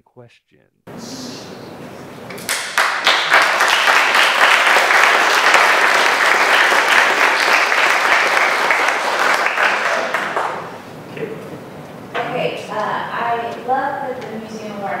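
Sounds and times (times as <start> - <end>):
audience applause: 2.4 - 10.8.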